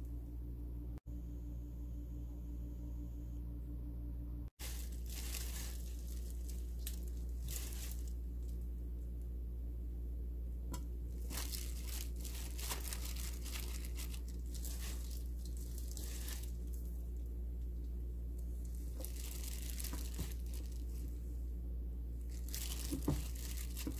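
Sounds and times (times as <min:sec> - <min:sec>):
steady low hum: 0:00.0 - 0:23.9
chives rustling: 0:04.6 - 0:08.6, 0:11.1 - 0:21.2, 0:22.3 - 0:23.9
plastic glove crinkling: 0:04.6 - 0:08.8, 0:11.0 - 0:21.3, 0:22.2 - 0:23.9.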